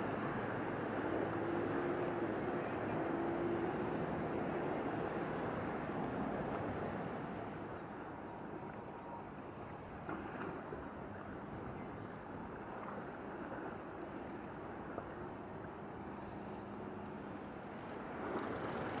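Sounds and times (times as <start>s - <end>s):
ship bow wave and engine: 0.0s - 19.0s.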